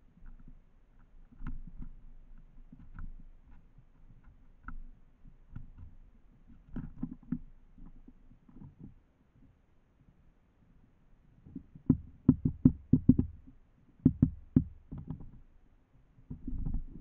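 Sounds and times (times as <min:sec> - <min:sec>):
bird pecking at feeder: 0:11.5 - 0:15.4.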